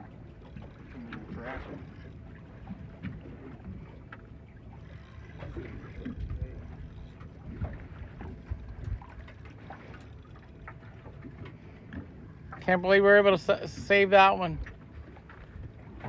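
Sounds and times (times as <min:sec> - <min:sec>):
water against a hull: 0:00.0 - 0:16.0
wind on microphone: 0:05.4 - 0:09.3.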